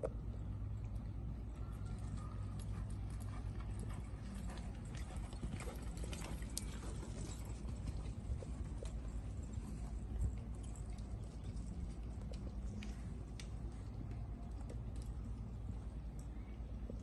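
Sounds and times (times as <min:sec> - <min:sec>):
horse hoofbeats on sand: 0:02.3 - 0:13.3.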